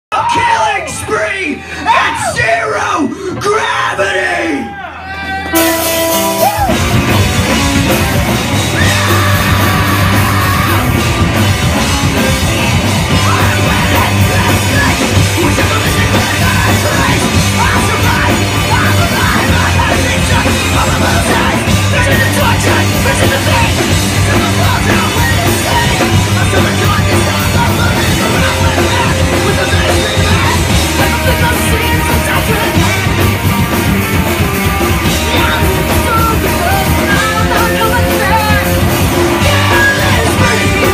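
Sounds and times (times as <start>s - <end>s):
punk rock band playing: 0.1s - 4.2s, 5.0s - 40.9s
singer yelling: 0.1s - 11.4s, 34.9s - 40.9s.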